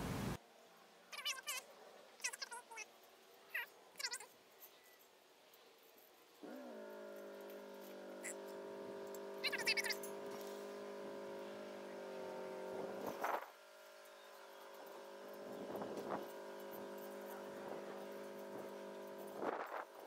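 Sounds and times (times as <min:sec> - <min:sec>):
steady hum: 0:06.4 - 0:20.0.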